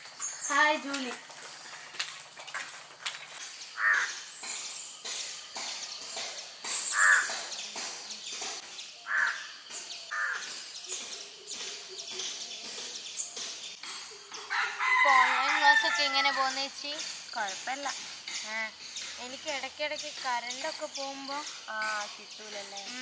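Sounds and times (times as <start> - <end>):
crows cawing: 3.8 - 4.3, 6.9 - 7.5, 9.0 - 10.6.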